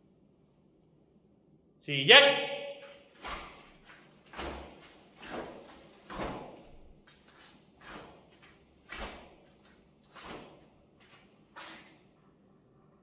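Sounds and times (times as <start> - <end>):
bare feet stepping on foam mats: 2.8 - 12.0.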